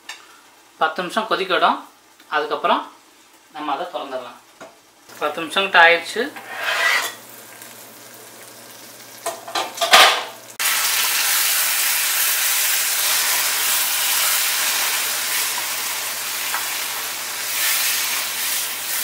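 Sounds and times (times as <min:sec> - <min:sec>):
gravy sizzling while stirred: 0:04.5 - 0:19.0
utensils clattering on pan: 0:06.4 - 0:07.2, 0:09.2 - 0:10.4.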